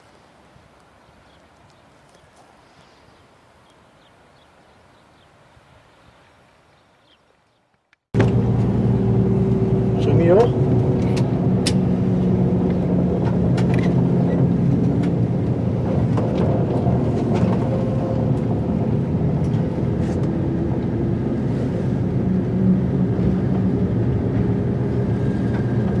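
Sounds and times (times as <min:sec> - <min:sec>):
train diesel engine running: 0:08.2 - 0:26.0.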